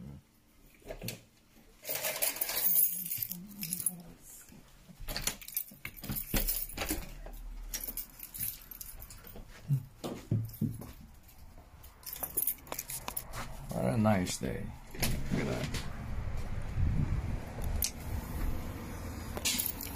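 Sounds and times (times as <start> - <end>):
keys jangling: 1.8 - 4.1, 5.1 - 9.8, 10.4 - 13.4, 19.4 - 19.9.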